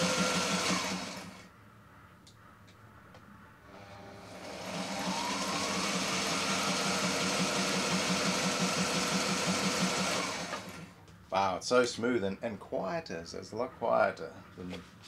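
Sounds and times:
sewing machine running: 0:00.0 - 0:01.4, 0:03.7 - 0:11.0.

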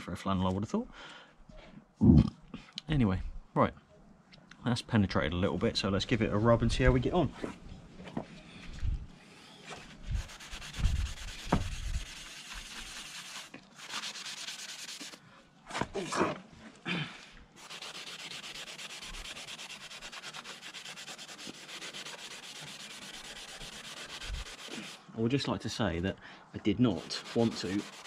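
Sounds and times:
sponge scrubbing metal pipe: 0:10.1 - 0:15.2, 0:17.6 - 0:25.0, 0:26.9 - 0:28.0.

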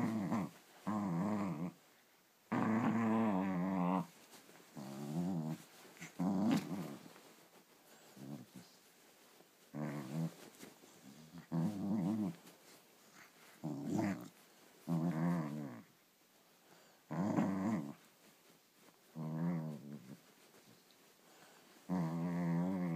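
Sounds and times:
small dog growling: 0:00.0 - 0:01.8, 0:02.5 - 0:04.2, 0:04.8 - 0:07.2, 0:08.1 - 0:08.8, 0:09.7 - 0:12.5, 0:13.1 - 0:15.9, 0:17.1 - 0:18.0, 0:19.1 - 0:20.2, 0:21.9 - 0:22.9.

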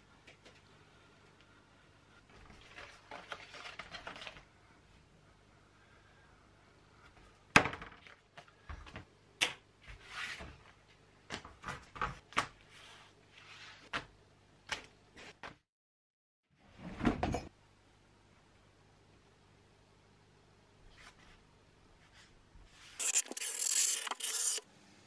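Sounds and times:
paper rustling: 0:02.3 - 0:04.5, 0:22.8 - 0:24.6.

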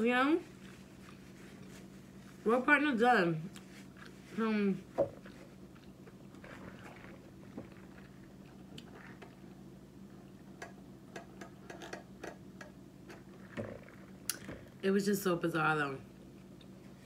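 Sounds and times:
steady low hum: 0:00.0 - 0:17.0
person chewing: 0:00.4 - 0:02.4, 0:03.4 - 0:04.4, 0:05.2 - 0:09.6.

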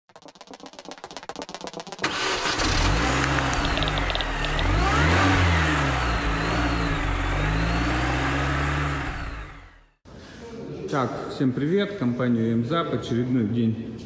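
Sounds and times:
car engine revving: 0:02.0 - 0:10.0.

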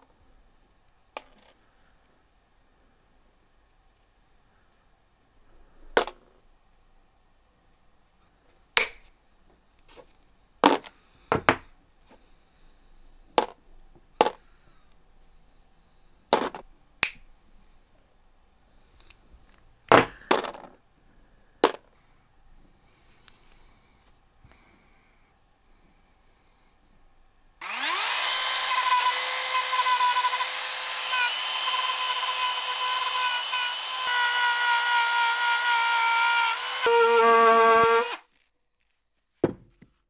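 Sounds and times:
hard objects knocking: 0:39.4 - 0:40.0.

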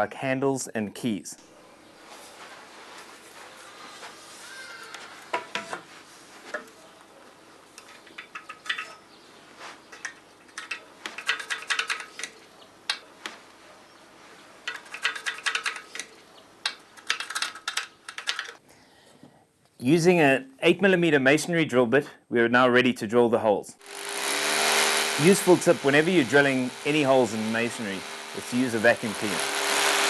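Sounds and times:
metal gate track rattling: 0:09.9 - 0:13.0, 0:14.6 - 0:16.1, 0:16.7 - 0:18.6.

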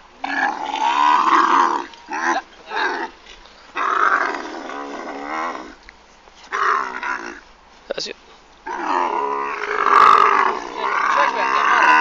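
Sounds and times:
camel bellowing: 0:06.5 - 0:07.4, 0:08.6 - 0:12.0.

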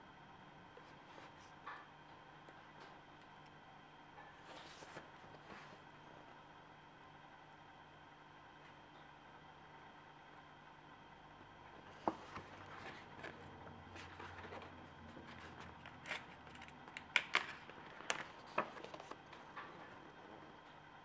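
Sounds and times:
paper rustling: 0:04.4 - 0:05.9, 0:11.9 - 0:19.6.

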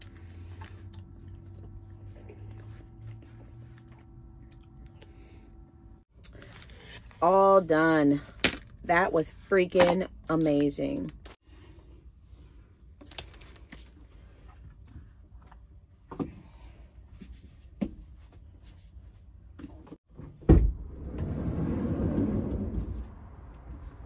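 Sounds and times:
sliding door rolling open: 0:20.5 - 0:23.7.

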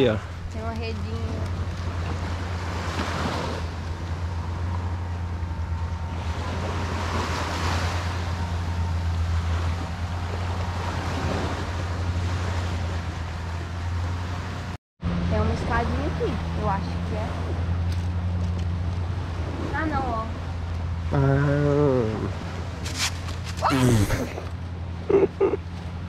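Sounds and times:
surf washing onto shore: 0:01.0 - 0:04.8.

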